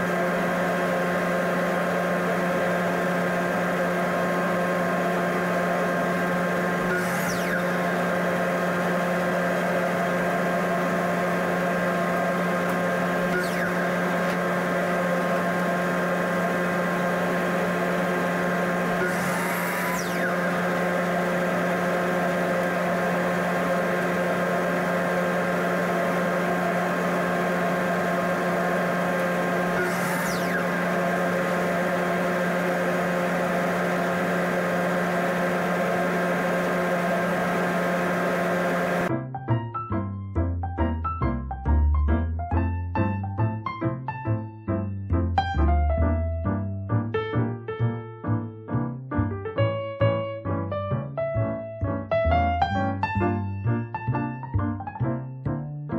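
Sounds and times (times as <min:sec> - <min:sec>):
electric machine hum: 0:00.0 - 0:39.2, 0:50.1 - 0:54.8.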